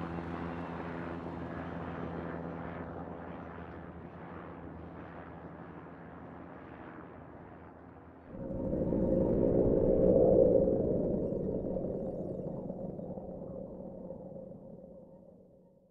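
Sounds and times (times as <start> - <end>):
steady low hum: 8.3 - 15.6.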